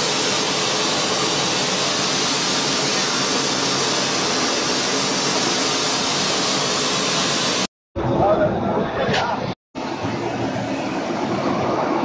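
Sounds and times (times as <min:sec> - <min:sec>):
flour mill whirring and grinding: 0:00.0 - 0:07.6.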